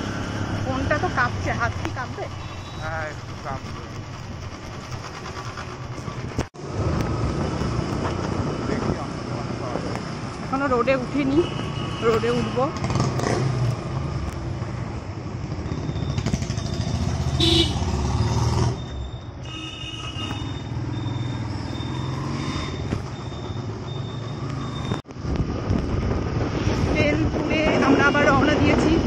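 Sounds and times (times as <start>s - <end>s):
wind: 0.0s - 29.0s
horns tooting: 2.0s - 3.2s, 11.1s - 12.9s, 16.1s - 18.0s, 19.4s - 25.0s
motorcycle engine rumble: 18.8s - 29.0s
faint high beep: 20.3s - 25.0s.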